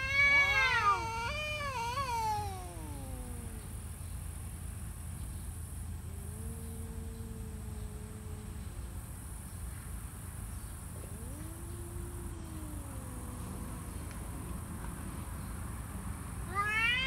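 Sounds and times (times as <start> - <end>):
cats yowling: 0.0 - 3.9, 6.0 - 9.0, 10.9 - 14.6, 16.4 - 17.0.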